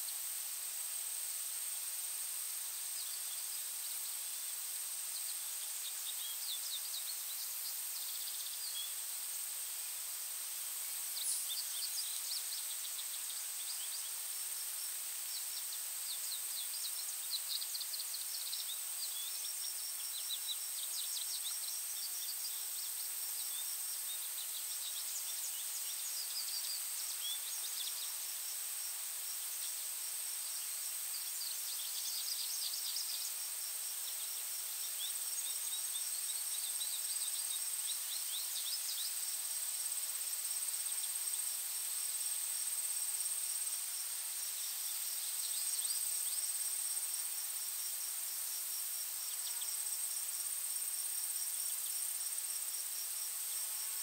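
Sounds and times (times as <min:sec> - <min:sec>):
insects droning: 0:00.0 - 0:54.0
quick insect chirps: 0:00.0 - 0:54.0
small birds singing: 0:05.0 - 0:09.1, 0:10.9 - 0:14.4, 0:15.2 - 0:28.3.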